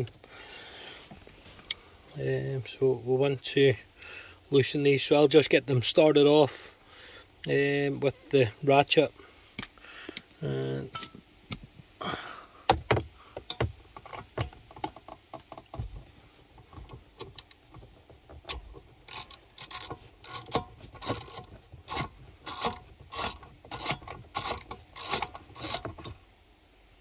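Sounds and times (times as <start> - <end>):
hand ratchet clicking: 16.7 - 26.2.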